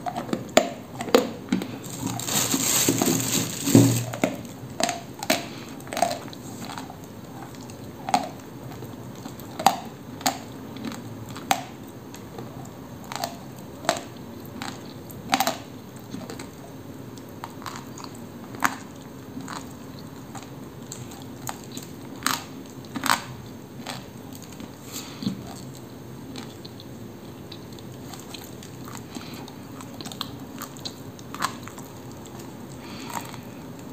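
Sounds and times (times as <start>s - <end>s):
quiet chewing: 0.0s - 33.9s
crisp crunches of biting clay: 1.6s - 4.2s.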